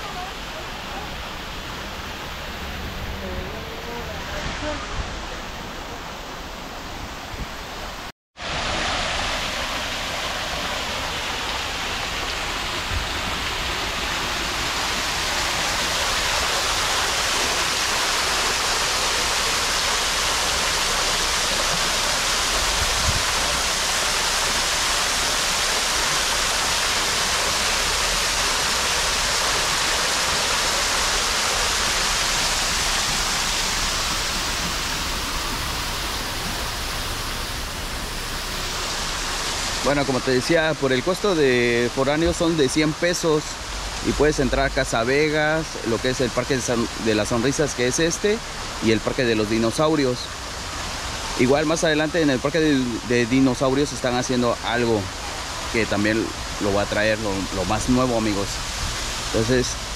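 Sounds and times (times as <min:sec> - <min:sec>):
waterfall splashing into pool: 0:08.4 - 0:59.9.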